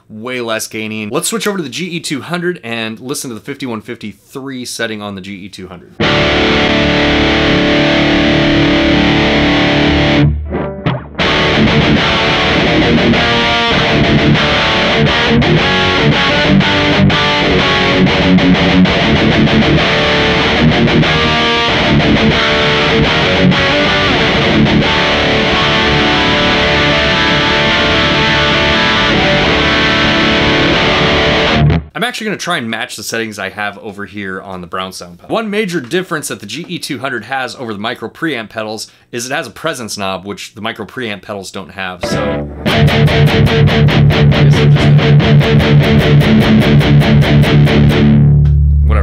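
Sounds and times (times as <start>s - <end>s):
distorted electric guitar: 6.0s - 32.0s, 42.0s - 49.0s.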